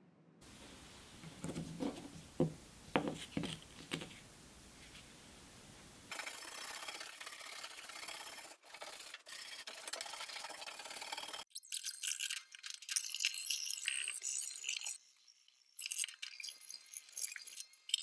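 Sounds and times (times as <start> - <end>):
brushes knocking on wood: 1.2 - 4.2
brush scrubbing metal grate: 6.1 - 11.4.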